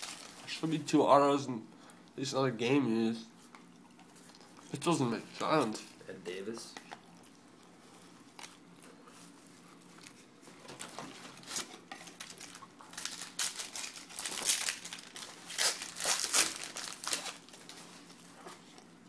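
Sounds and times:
wrapper crinkling and tearing: 0.0 - 0.7, 10.7 - 18.3.

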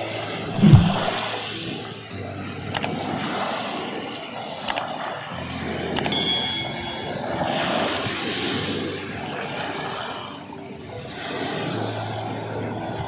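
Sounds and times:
short bright bell chime: 6.0 - 8.1.

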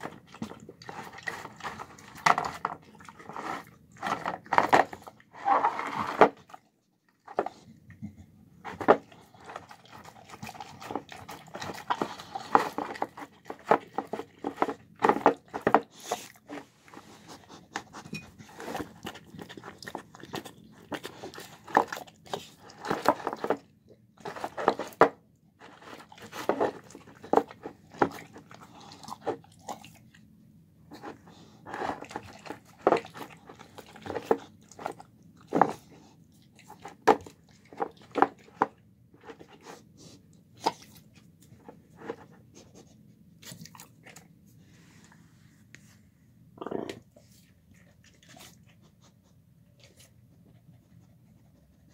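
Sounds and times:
dog chewing and licking: 0.0 - 5.3, 5.9 - 30.3, 30.9 - 39.8, 43.4 - 44.5, 46.6 - 51.9.

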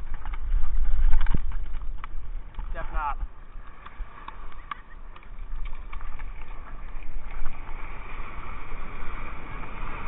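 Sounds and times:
wind buffeting microphone: 0.0 - 10.0
small waves washing on beach: 3.4 - 10.0.

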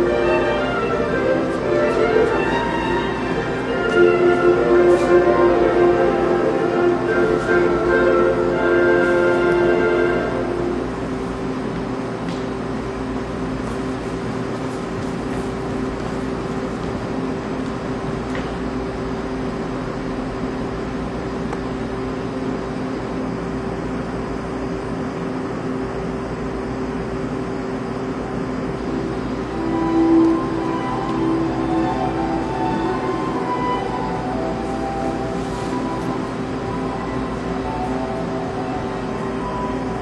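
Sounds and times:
steady hiss: 0.0 - 18.0, 27.7 - 40.0
held hum note: 0.0 - 20.8, 27.6 - 40.0.

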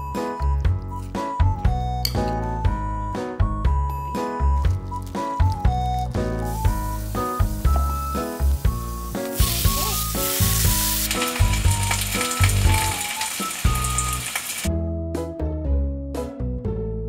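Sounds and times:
light background music: 0.0 - 17.0
meat sizzling in frying pan: 5.4 - 14.7.

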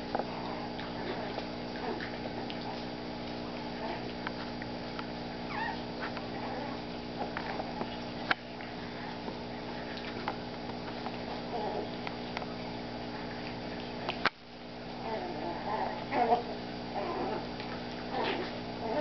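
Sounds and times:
steady background hum: 0.0 - 19.0
dogs whining: 5.4 - 8.0, 11.3 - 12.1, 15.0 - 19.0.

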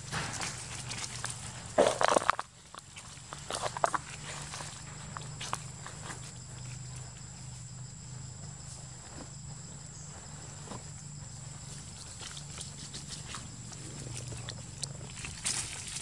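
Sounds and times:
high insect drone: 0.0 - 16.0
rustles in dry leaves: 10.0 - 16.0.

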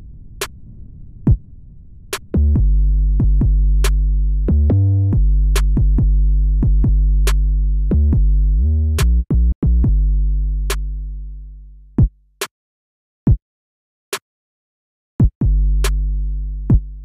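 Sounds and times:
sliding deep bass notes: 0.0 - 12.0, 15.5 - 17.0.

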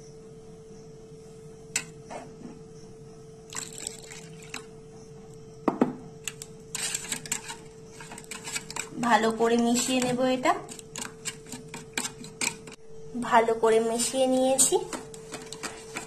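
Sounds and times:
metal spoon stirring in bowl: 3.5 - 4.7, 6.2 - 12.8, 14.4 - 16.0
milk sloshing into pulp: 3.5 - 4.7.

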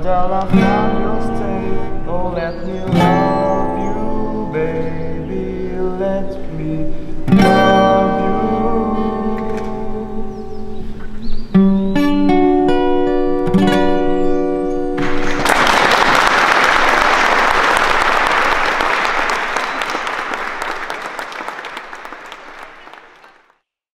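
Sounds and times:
acoustic guitar plucking: 0.0 - 15.4
applause: 15.0 - 23.6.

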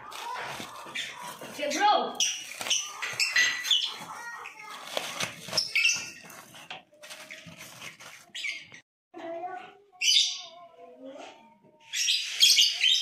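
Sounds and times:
plastic bags rustling: 0.0 - 8.8.

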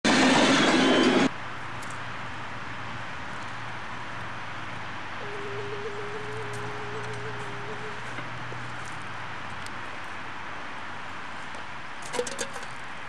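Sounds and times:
steady tone: 5.2 - 8.6
low hum: 5.2 - 10.2.

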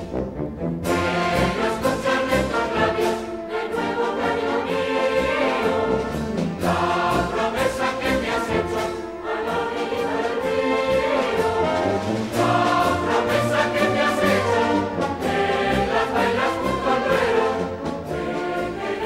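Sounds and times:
choir singing: 0.0 - 19.0
orchestra playing: 0.0 - 19.0.

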